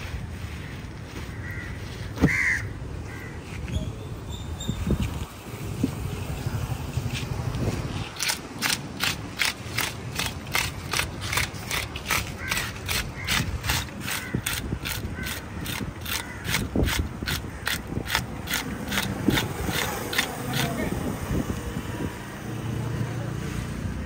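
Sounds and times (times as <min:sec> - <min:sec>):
scaler rasping fish scales: 0:07.8 - 0:21.0.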